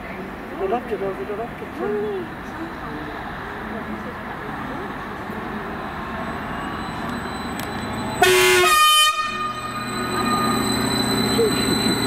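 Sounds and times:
train moving off hum: 0.0 - 12.0
train horn toot: 8.2 - 10.6.

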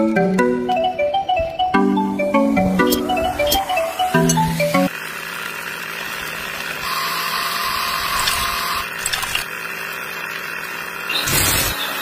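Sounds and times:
small motor whirring: 6.8 - 9.5, 11.1 - 12.0.

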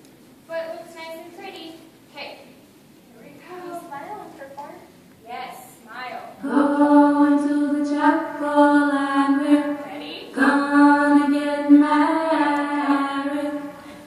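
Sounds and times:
slow singing with held notes: 6.3 - 14.0.

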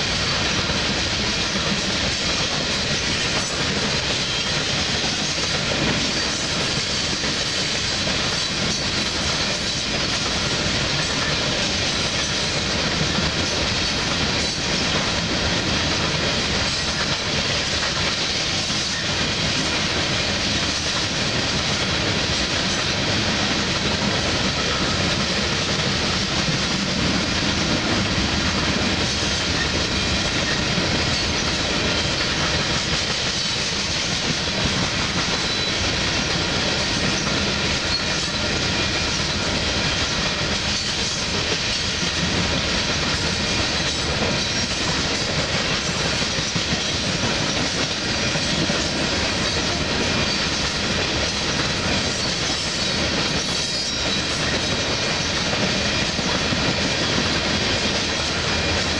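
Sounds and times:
train wheels rolling on rails: 0.0 - 58.9.

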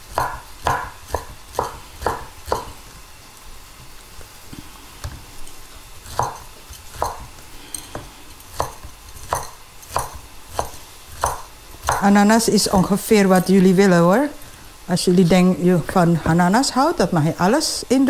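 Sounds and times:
knife chopping on wooden board: 0.1 - 2.8, 6.0 - 12.1.

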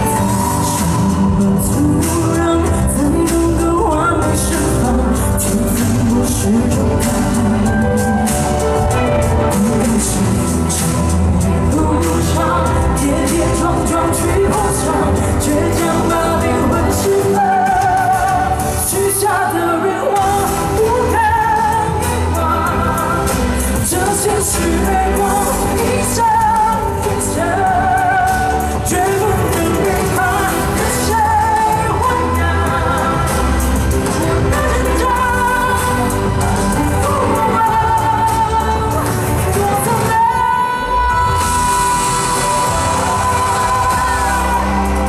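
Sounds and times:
backing music with bass beat: 0.0 - 19.6, 20.2 - 45.0
woman singing into microphone: 0.0 - 45.0.

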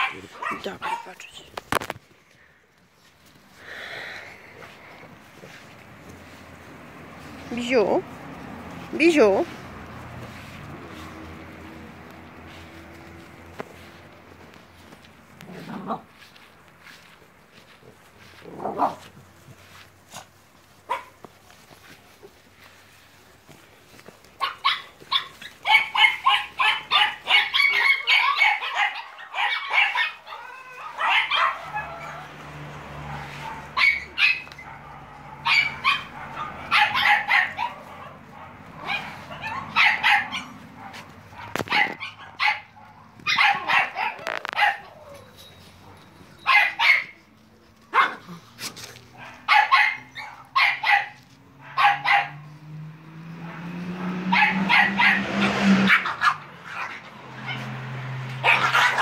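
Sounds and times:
puppies yapping and barking: 0.0 - 1.9, 3.0 - 59.0.

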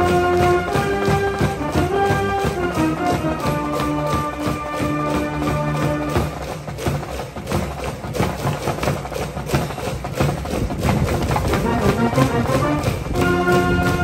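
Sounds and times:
brass notes: 0.0 - 7.6, 11.2 - 14.0
band drums and percussion beat: 0.0 - 14.0.

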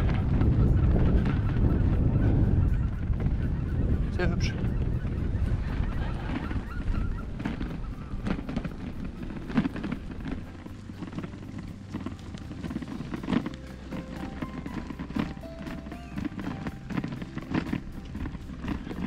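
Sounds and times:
steady musical tones: 0.0 - 19.0
wind rumble on microphone: 0.0 - 19.0
bicycle knocks and rattles: 6.8 - 19.0.

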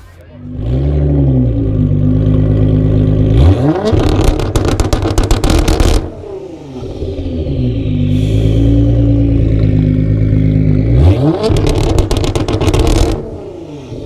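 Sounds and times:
car engine idling and revving: 0.0 - 14.0
exhaust crackling bangs: 3.8 - 6.2, 8.6 - 13.4.

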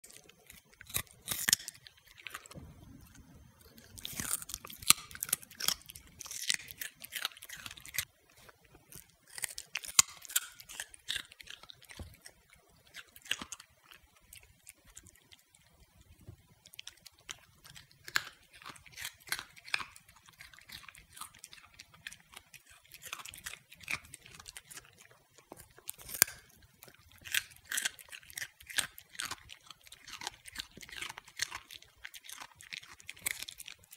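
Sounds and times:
dog crunching carrot: 0.0 - 33.9.

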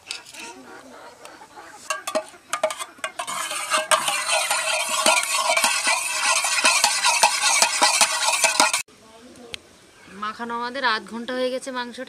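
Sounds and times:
metal utensil beating in a pan: 1.9 - 8.9.

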